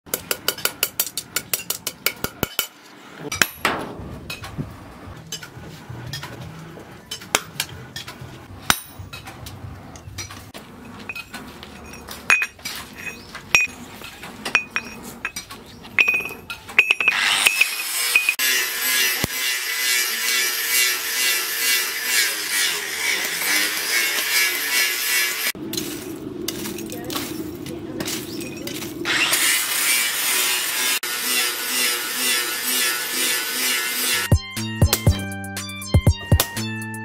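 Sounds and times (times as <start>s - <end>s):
hammer striking steel: 0.1s - 4.5s, 8.6s - 9.3s, 12.3s - 13.7s, 16.0s - 25.9s.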